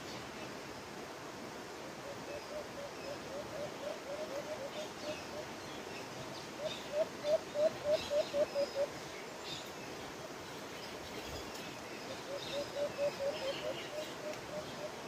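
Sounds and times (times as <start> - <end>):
dove hooting: 2.0 - 5.6, 6.6 - 9.0, 12.1 - 15.0.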